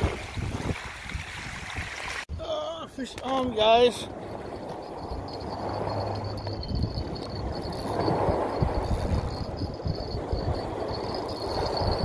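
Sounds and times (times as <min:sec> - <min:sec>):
wind buffeting microphone: 0:00.0 - 0:02.4, 0:03.0 - 0:12.0
faint steady high tone: 0:03.7 - 0:12.0.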